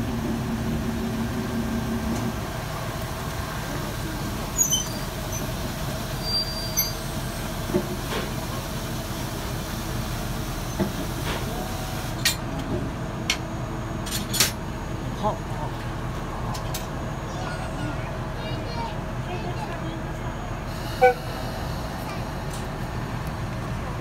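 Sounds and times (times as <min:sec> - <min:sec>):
electric locomotive rumbling: 0:00.0 - 0:24.0.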